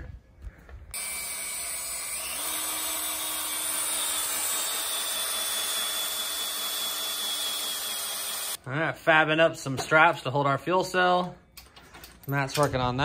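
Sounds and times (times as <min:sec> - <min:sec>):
cordless drill boring into metal: 0:00.9 - 0:08.6.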